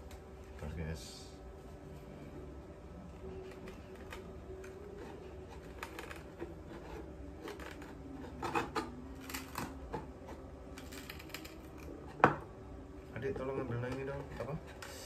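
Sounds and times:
wood creaking: 0:03.5 - 0:12.2.

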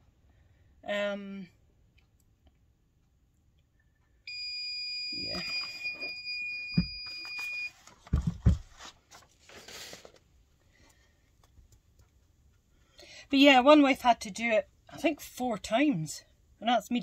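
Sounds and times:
long electronic timer beep: 0:04.3 - 0:07.7.

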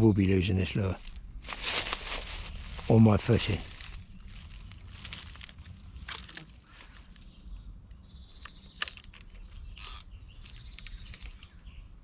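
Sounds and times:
low rumble of handling and wind: 0:00.0 - 0:12.0
leaves and twigs rustling: 0:00.4 - 0:07.4.

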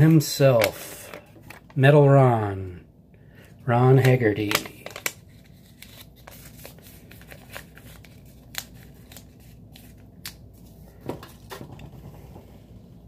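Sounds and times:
paper being folded and creased: 0:04.0 - 0:10.7.

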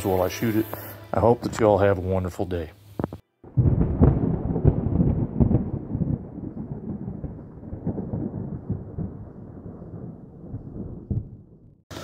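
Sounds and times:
rolling thunder: 0:03.4 - 0:12.0.

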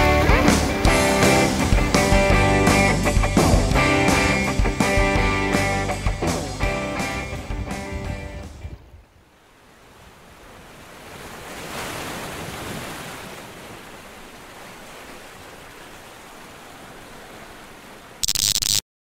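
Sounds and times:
ocean surf washing on beach: 0:08.6 - 0:18.2.

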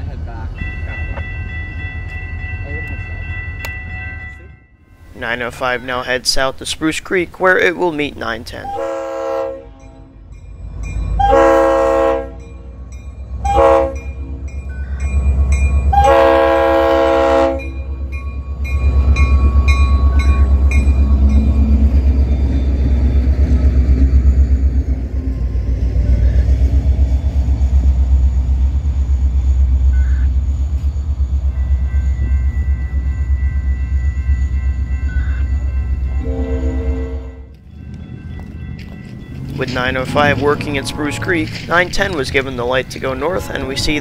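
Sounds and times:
locomotive passing rumble: 0:00.0 - 0:44.0
locomotive air horn: 0:08.6 - 0:09.8, 0:11.2 - 0:12.4, 0:13.4 - 0:14.1, 0:15.9 - 0:17.7, 0:36.2 - 0:37.5, 0:40.6 - 0:41.5.

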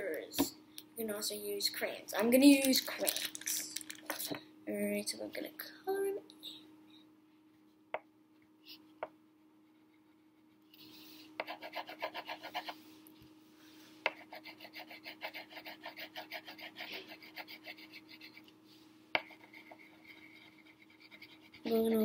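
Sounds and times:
crayon scribbling on paper: 0:11.4 - 0:12.8, 0:14.1 - 0:18.4, 0:19.2 - 0:21.8.

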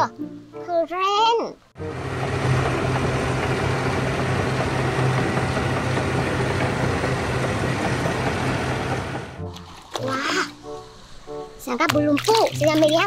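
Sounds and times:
bulldozer diesel engine running: 0:01.8 - 0:09.4.

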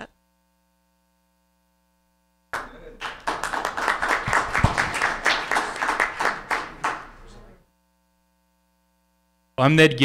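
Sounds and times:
people clapping: 0:02.5 - 0:07.5.

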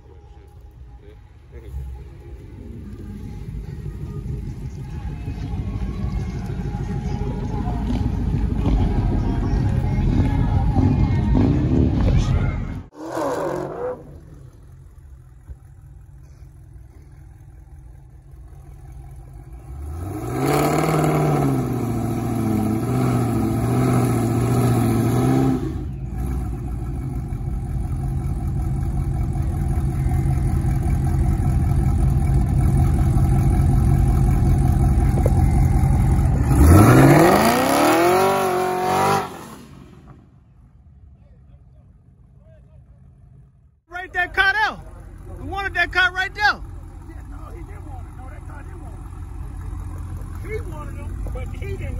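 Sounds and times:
car engine revving: 0:10.8 - 0:40.3, 0:43.0 - 0:51.9.

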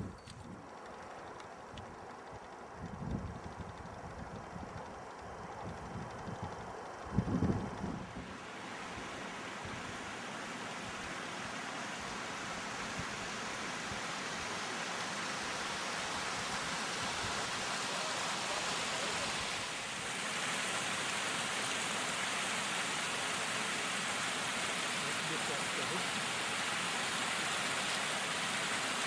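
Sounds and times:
mountain stream rushing: 0:08.2 - 0:29.0.

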